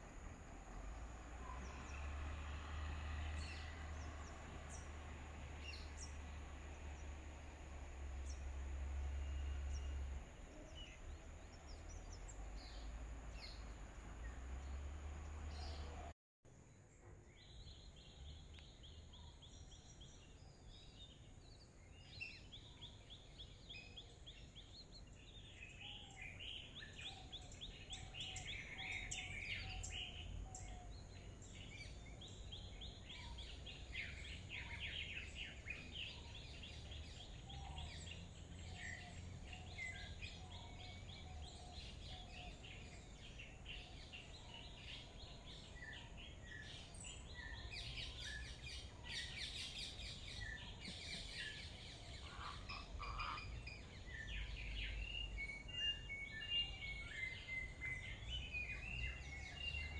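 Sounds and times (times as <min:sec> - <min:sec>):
birds chirping: 0:00.0 - 0:16.2, 0:16.8 - 0:59.9
bird songs and whistles: 0:17.4 - 0:59.9.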